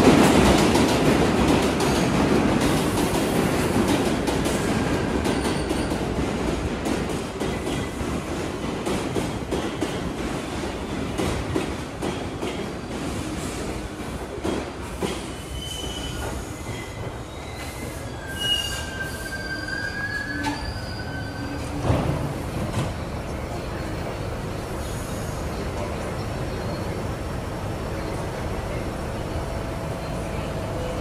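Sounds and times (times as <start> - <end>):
train wheels squealing: 4.5 - 6.2, 15.0 - 22.2.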